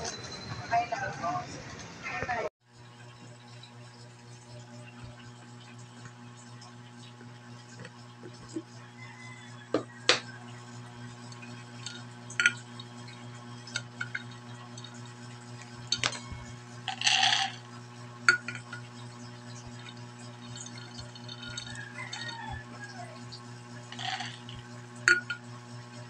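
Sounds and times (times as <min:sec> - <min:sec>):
plastic scoop clinking on glass jar: 0:15.9 - 0:17.6, 0:23.9 - 0:25.4
peanuts rattling into a pot: 0:16.9 - 0:17.6, 0:23.9 - 0:24.6.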